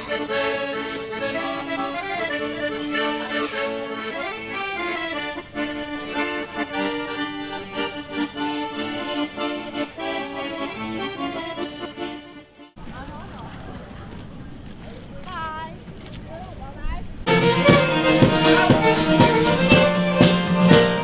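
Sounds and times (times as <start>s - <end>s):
accordions playing a tune: 0.0s - 12.8s, 17.2s - 21.0s.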